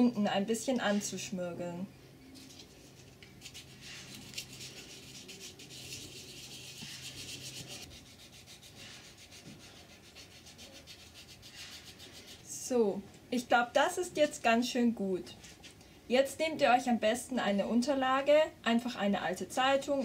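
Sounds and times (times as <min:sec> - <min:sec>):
sandpaper rubbing on wood: 0:03.4 - 0:12.5.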